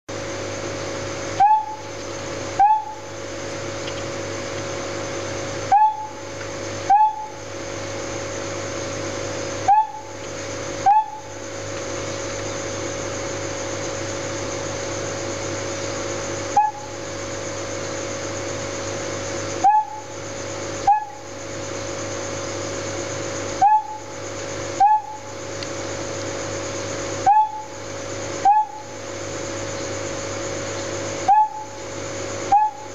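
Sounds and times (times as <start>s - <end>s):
steady hiss with low hum: 0.1s - 32.9s
frog chirping calls: 1.4s - 3.1s, 5.6s - 7.5s, 9.6s - 11.4s, 16.5s - 17.0s, 19.6s - 20.2s, 20.8s - 21.3s, 23.6s - 25.4s, 27.2s - 27.8s, 28.4s - 29.0s, 30.7s - 32.9s.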